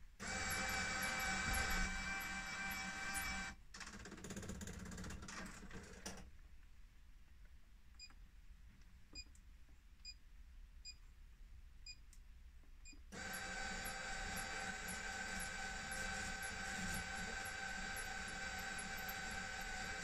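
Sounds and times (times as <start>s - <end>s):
electric motors whining: 0.2s - 3.6s, 13.2s - 20.0s.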